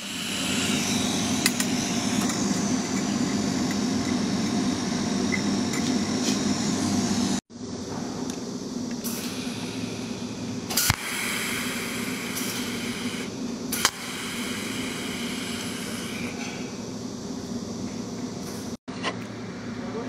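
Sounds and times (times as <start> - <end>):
welding machine hum: 0.0 - 18.8
welder pulse snaps: 10.7 - 16.0.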